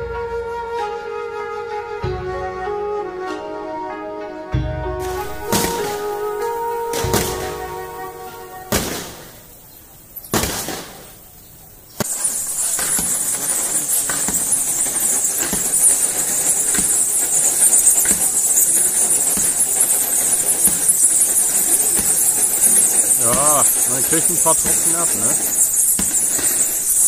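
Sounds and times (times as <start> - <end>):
music: 0.0 - 9.4
bats chittering: 5.0 - 27.0
sharp clicks: 12.0 - 27.0.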